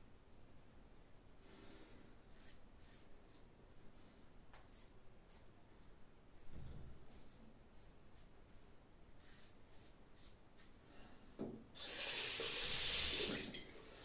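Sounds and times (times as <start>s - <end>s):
knock: 11.4s - 11.6s
tap running water: 11.8s - 13.8s.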